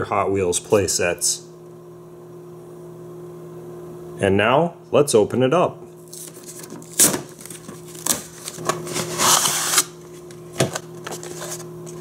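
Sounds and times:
low steady hum: 0.0 - 12.0
cardboard rustling and tearing: 6.1 - 12.0.

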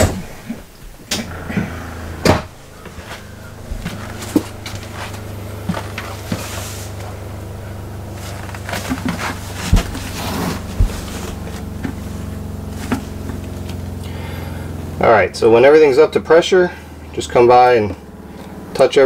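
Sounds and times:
water pump humming: 0.0 - 19.0
handling knocks and clicks: 2.2 - 13.8.

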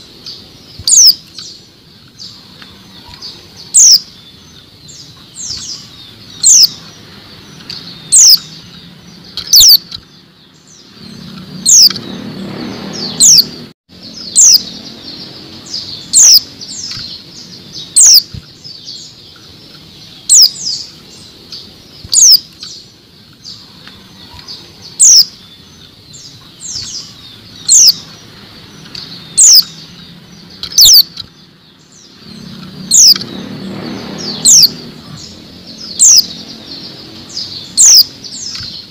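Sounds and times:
bird sharp high call: 9.4 - 9.9, 30.6 - 31.2.

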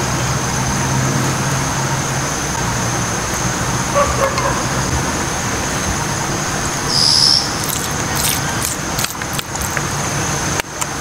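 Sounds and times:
outdoor hiss: 0.0 - 11.0.

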